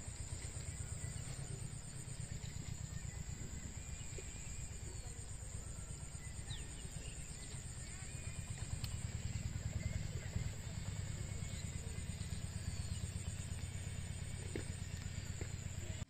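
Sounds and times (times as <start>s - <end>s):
high-pitched insect drone: 0.0s - 16.0s
faint bird chirps: 0.1s - 16.0s.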